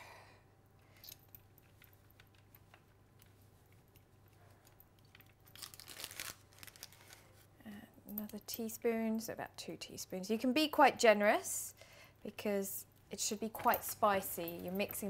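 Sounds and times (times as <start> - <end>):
rustling: 1.4 - 7.6.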